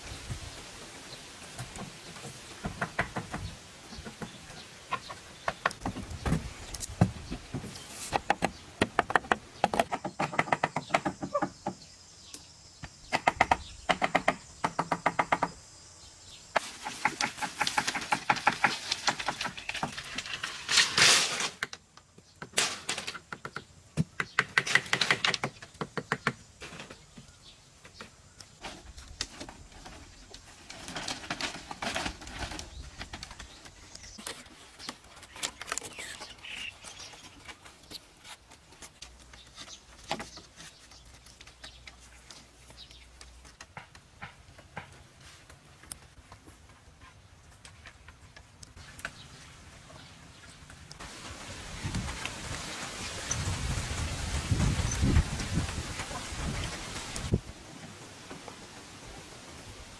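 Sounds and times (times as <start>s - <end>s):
wooden poles knocking and clattering: 1.5s - 11.8s, 16.6s - 46.8s.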